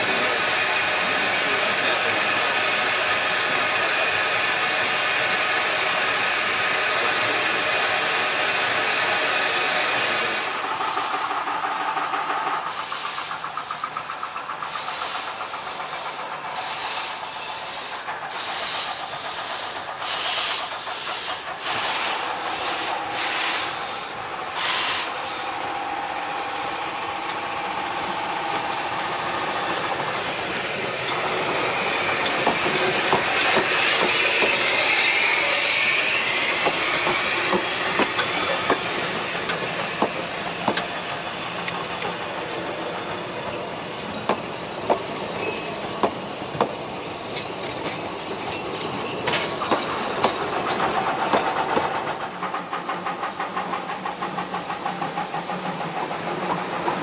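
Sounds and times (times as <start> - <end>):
steam locomotive exhaust blasts: 0.0 - 43.4
steam locomotive hissing: 0.0 - 57.0.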